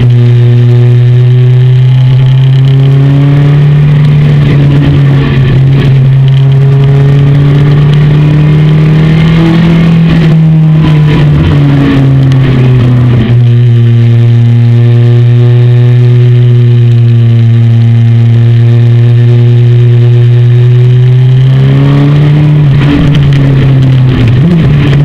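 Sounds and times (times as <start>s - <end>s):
motorcycle engine running loud: 0.0s - 25.0s.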